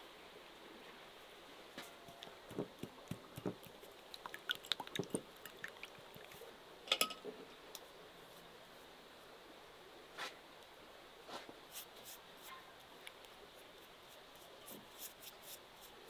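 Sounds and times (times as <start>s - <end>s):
brush tapping ceramic bowl: 2.1s - 5.6s.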